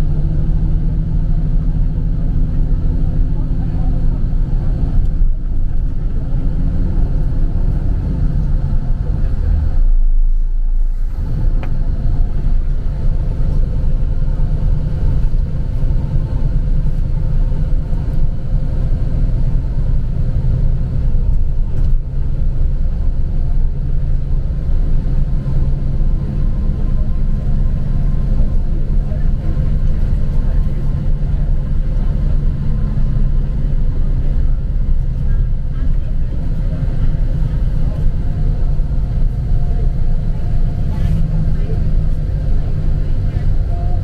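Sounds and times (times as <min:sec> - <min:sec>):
vehicle cabin engine and road rumble: 0:00.0 - 0:44.0.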